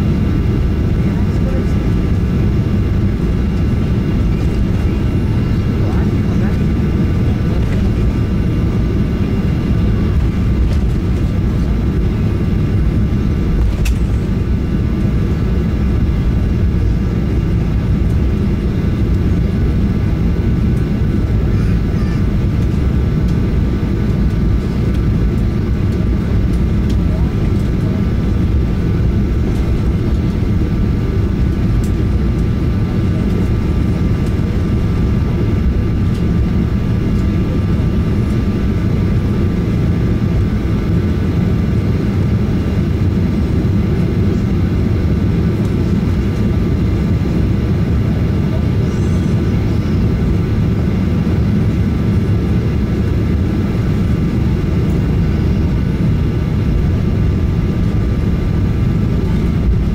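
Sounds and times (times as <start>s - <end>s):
jet engines low rumble: 0.0s - 59.9s.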